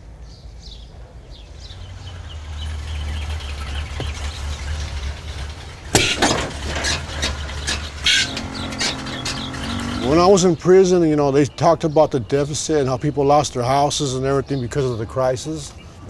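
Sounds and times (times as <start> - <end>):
knocks and metallic clinks: 6.0 - 10.0.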